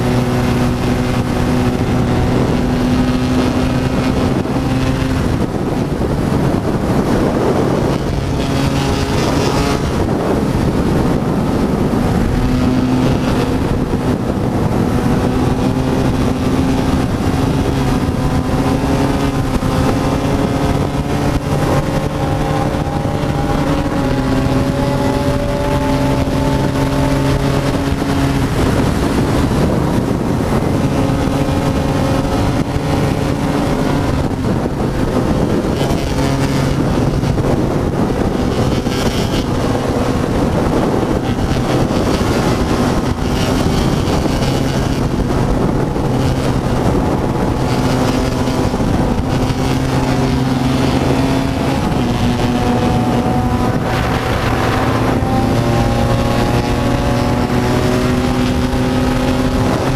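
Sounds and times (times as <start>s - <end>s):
motorcycle engine at high revs: 0.0s - 59.9s
wind noise on microphone: 0.0s - 59.9s.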